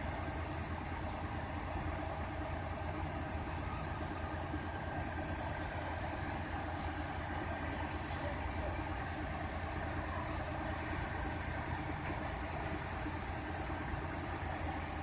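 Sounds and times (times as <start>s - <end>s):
heavy diesel engine running: 0.0s - 15.0s.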